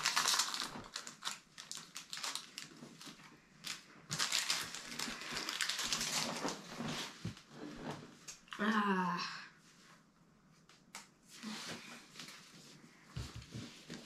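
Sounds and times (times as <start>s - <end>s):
foil wrapper crinkling: 0.0s - 6.8s.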